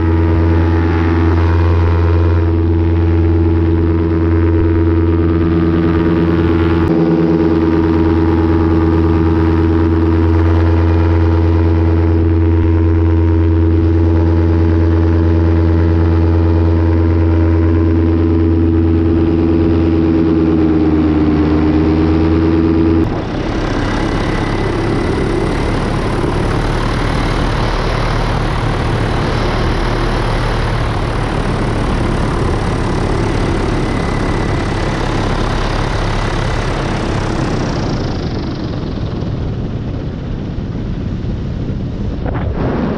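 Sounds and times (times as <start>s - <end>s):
paramotor engine running: 0.0s - 42.9s
rough noisy rush: 0.0s - 42.9s.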